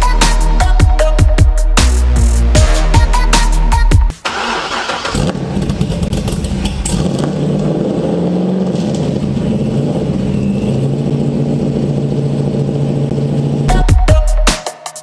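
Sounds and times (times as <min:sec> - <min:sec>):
car engine revving and idling: 0:04.2 - 0:14.2.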